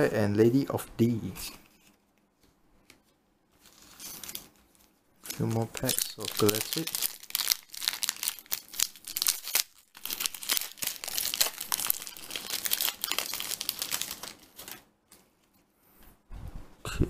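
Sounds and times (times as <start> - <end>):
foil wrapper crinkling and tearing: 5.2 - 14.9.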